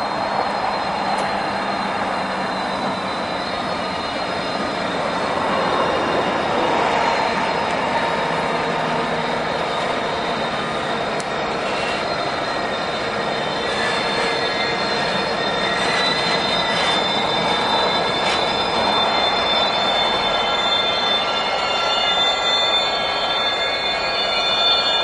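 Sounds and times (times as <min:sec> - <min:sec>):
diesel locomotive engines drone: 0:00.0 - 0:25.0
thin high whine: 0:00.0 - 0:25.0.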